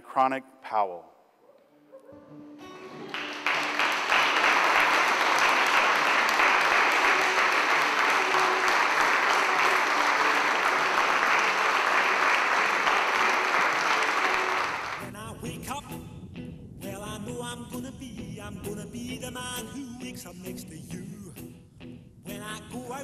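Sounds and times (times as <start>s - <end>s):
crowd applauding: 2.6s - 15.0s.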